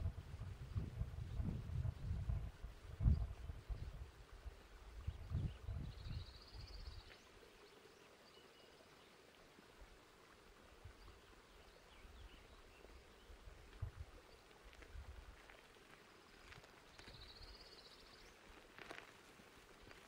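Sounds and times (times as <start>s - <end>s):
wind buffeting microphone: 0.0s - 7.0s, 13.7s - 14.2s
faint bird chirps: 16.9s - 18.4s.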